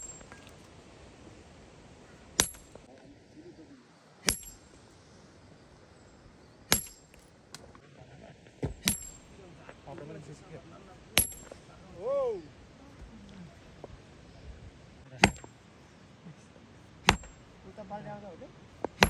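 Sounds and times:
metal striking metal: 2.4s - 2.8s, 4.2s - 4.8s, 6.7s - 7.3s, 8.6s - 9.4s, 11.2s - 11.6s, 15.2s - 15.5s, 17.1s - 17.4s.

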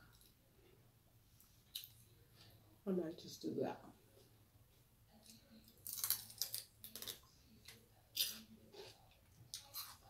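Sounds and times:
celery crunching while chewed: 5.2s - 10.0s.

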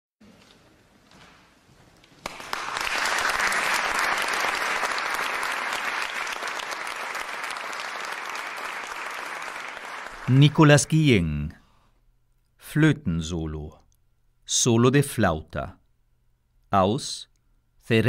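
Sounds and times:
audience applause: 2.2s - 10.9s.

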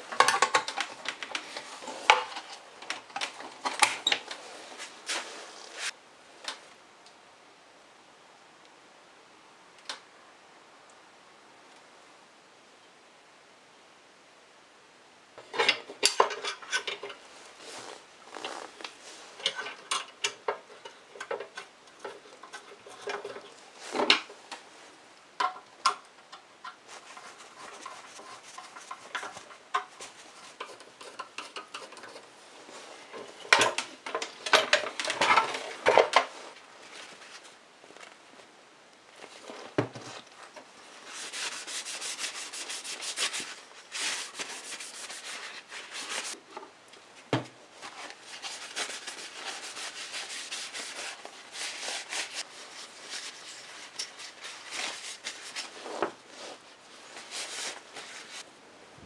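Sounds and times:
paper towel rubbing wood: 41.1s - 46.4s, 48.2s - 53.8s.

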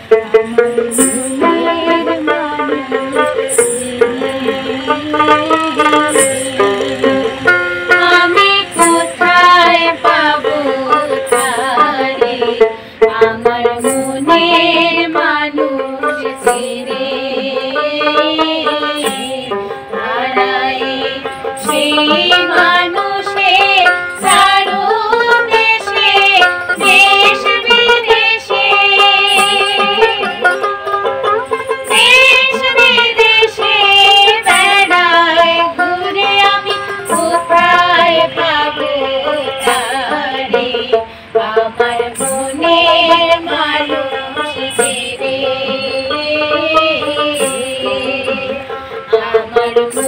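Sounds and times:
plucked string instruments: 0.0s - 50.0s
women singing folk song: 0.0s - 50.0s
hand cymbals chiming: 0.6s - 2.1s, 2.8s - 12.6s, 13.8s - 15.0s, 15.9s - 17.3s, 18.8s - 19.9s, 21.2s - 23.0s, 23.7s - 28.0s, 29.1s - 30.8s, 31.4s - 38.4s, 39.2s - 40.9s, 41.9s - 48.9s.

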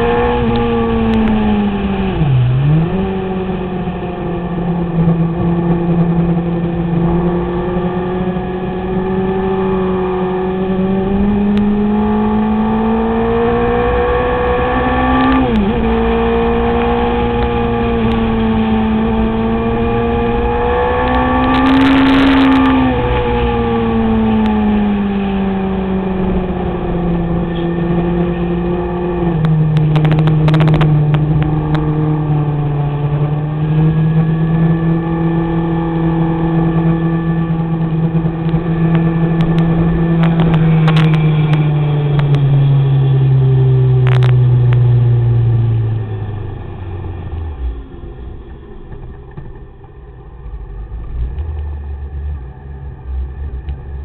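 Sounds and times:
motorcycle engine running: 15.3s - 54.0s.

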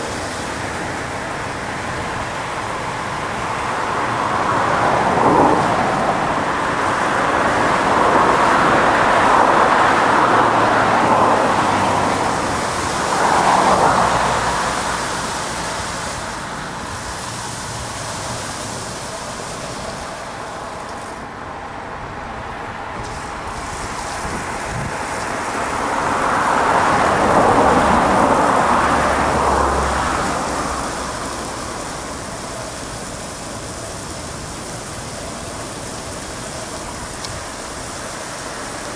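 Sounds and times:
car wash rushing: 0.0s - 38.9s.

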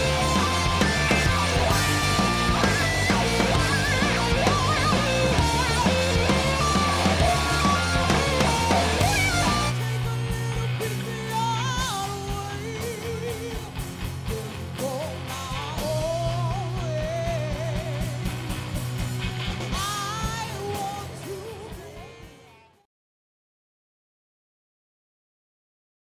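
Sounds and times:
rock band playing: 0.0s - 22.8s
woman singing with vibrato: 19.8s - 22.8s.

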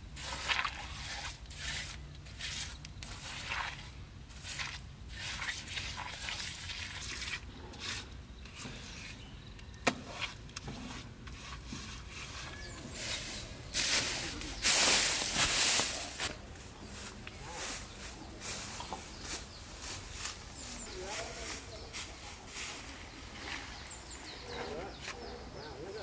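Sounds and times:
hands scraping wet mortar: 0.2s - 16.3s.

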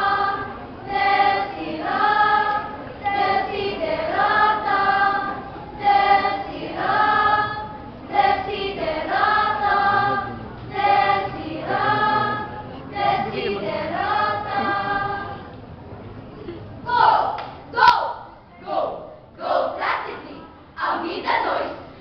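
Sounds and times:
children's choir singing: 0.0s - 15.6s, 16.9s - 22.0s.

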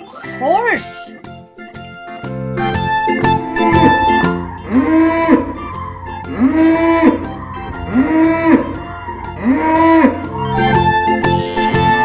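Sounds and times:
plucked-string background music: 0.0s - 12.0s
cow mooing: 3.3s - 12.0s.

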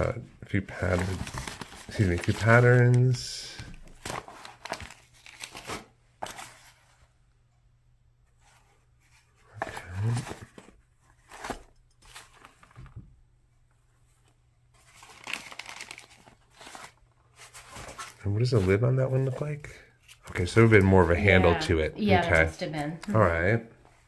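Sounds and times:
paper rustling and crinkling: 0.7s - 7.1s, 8.4s - 13.0s, 14.1s - 21.5s.

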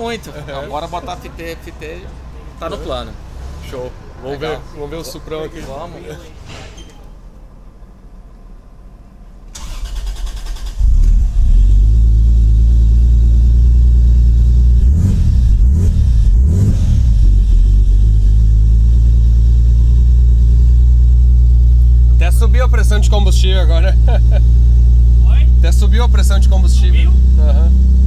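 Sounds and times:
engine starter cranking: 9.5s - 11.4s
car engine running and revving: 10.8s - 28.0s.

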